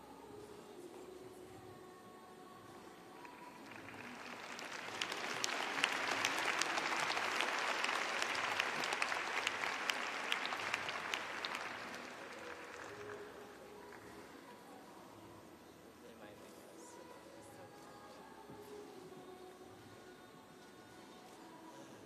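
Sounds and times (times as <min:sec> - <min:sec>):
audience applauding: 0:03.6 - 0:14.0.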